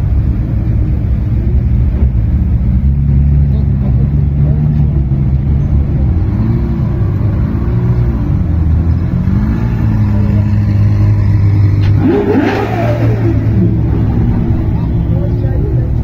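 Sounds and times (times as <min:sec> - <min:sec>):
car engines idling: 0:00.0 - 0:16.0
engine revving sharply: 0:09.2 - 0:16.0.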